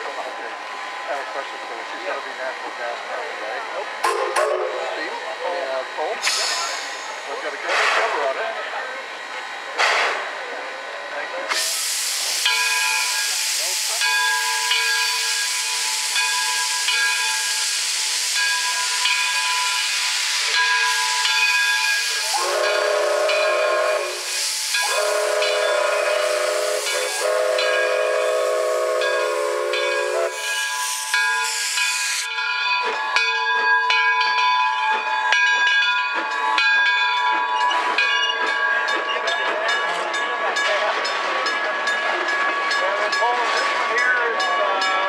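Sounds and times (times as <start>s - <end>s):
steam locomotive hissing: 0.0s - 33.3s
steam whistle blasts: 19.7s - 32.2s.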